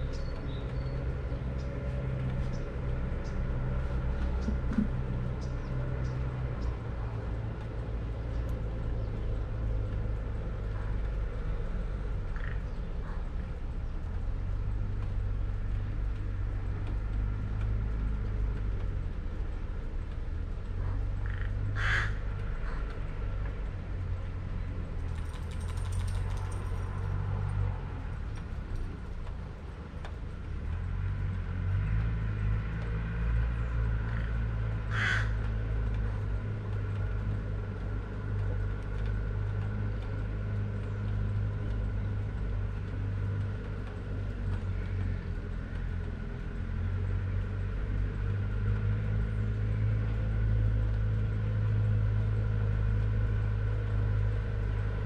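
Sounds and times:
crow cawing: 21.2s - 22.9s, 34.9s - 35.4s.

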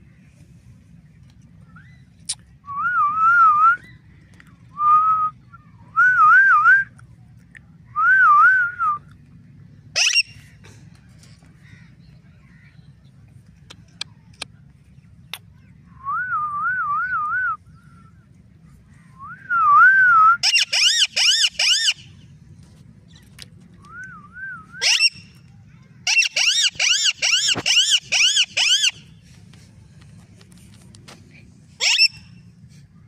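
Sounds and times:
parakeet screeching calls: 10.0s - 10.4s, 20.4s - 22.1s, 24.8s - 25.2s, 26.0s - 29.0s, 31.8s - 32.2s
parakeet warbling whistle: 20.4s - 22.0s, 24.8s - 25.2s, 26.1s - 29.0s, 31.8s - 32.2s.

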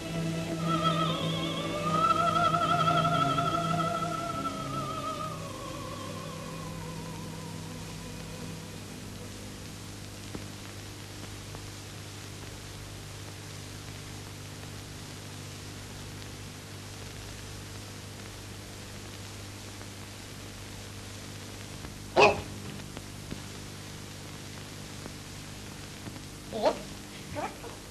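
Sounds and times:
low hum: 0.0s - 10.8s
recording hiss: 0.0s - 27.9s.

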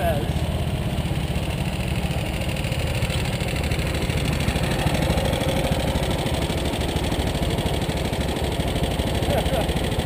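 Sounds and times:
three-wheeler engines idling: 0.0s - 10.0s.

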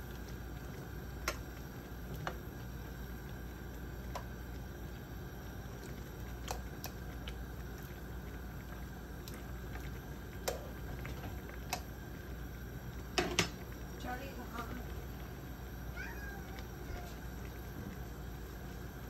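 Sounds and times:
steady low hum: 0.0s - 19.0s
vegetables popping in a frying pan: 0.2s - 2.6s, 9.1s - 12.1s, 13.0s - 15.0s.

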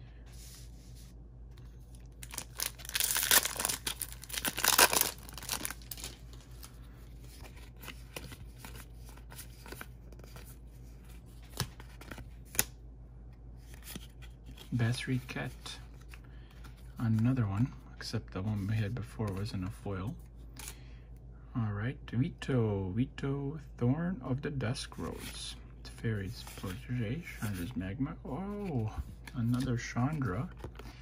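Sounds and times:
foil wrapper tearing and crinkling: 2.2s - 6.2s.

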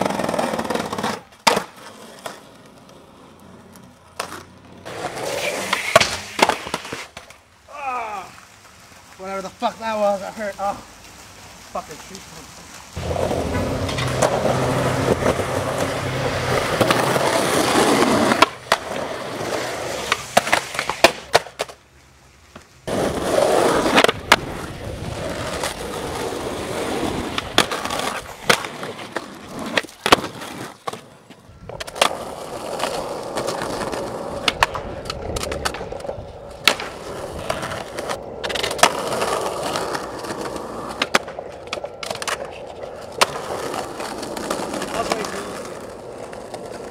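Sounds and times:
skateboard tail pops and landings: 0.0s - 2.4s, 4.2s - 7.4s, 13.0s - 21.8s, 22.5s - 31.1s, 31.7s - 45.4s
skateboard wheels rolling on concrete: 0.0s - 46.9s.

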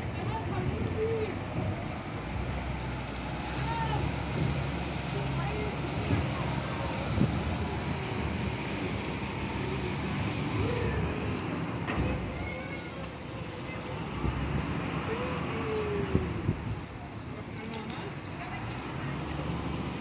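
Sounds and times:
distant traffic hum: 0.0s - 20.0s
faint voices: 0.0s - 20.0s
wind rumble on microphone: 6.0s - 9.0s, 14.1s - 17.1s.

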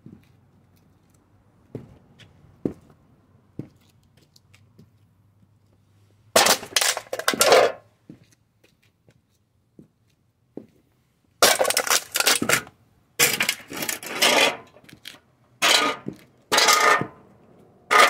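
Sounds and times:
sheet metal crunching under boot: 6.4s - 7.8s, 11.4s - 18.0s.

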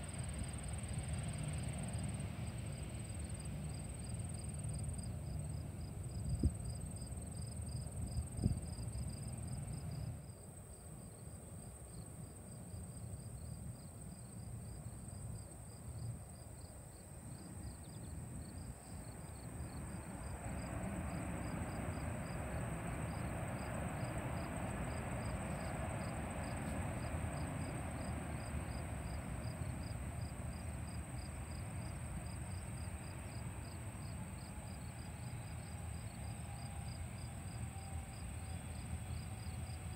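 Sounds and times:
crickets chirping: 0.0s - 39.9s
high insect whine: 0.0s - 39.9s
wind rumbling on microphone: 6.2s - 6.8s, 7.9s - 9.4s
distant jet engines powering up: 18.9s - 39.9s.

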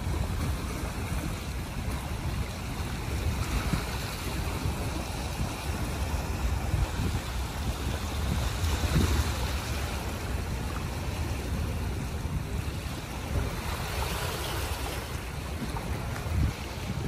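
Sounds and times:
gusty wind rumble: 0.0s - 17.0s
waves washing against rocks: 0.0s - 17.0s.

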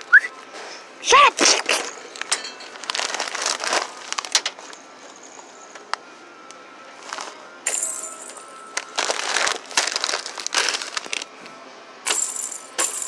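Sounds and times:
rustling and crinkling: 1.4s - 5.5s, 6.9s - 7.5s, 8.4s - 11.5s.

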